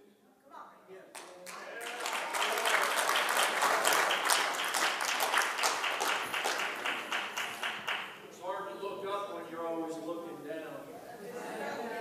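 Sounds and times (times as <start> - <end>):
audience applauding: 1.2 - 8.2.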